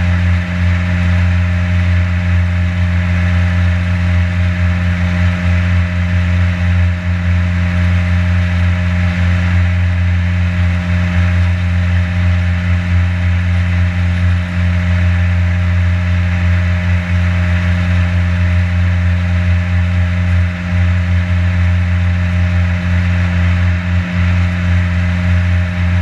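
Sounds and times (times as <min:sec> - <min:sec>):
boat motor droning: 0:00.0 - 0:26.0.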